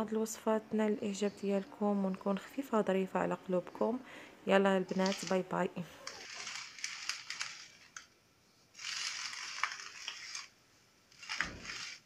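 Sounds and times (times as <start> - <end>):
crinkling crackling noise: 4.9 - 12.0.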